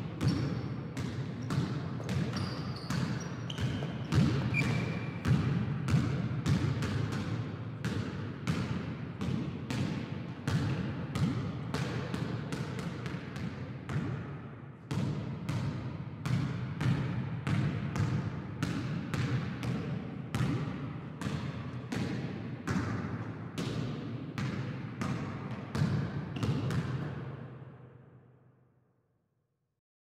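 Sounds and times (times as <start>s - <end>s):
sneaker squeaks: 0.2s - 0.6s, 1.4s - 5.3s
basketball dribbling: 0.2s - 9.9s.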